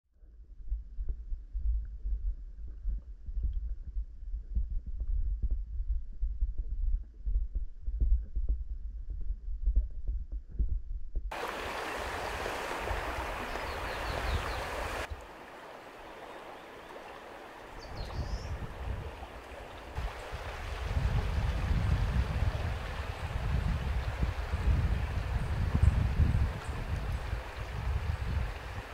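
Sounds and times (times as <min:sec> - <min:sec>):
river water rushing: 0:11.3 - 0:28.9
underwater river rumble: 0:11.3 - 0:28.9.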